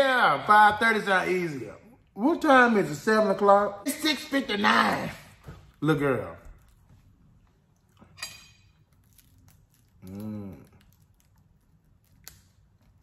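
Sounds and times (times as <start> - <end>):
man humming mm: 10.0 - 10.8.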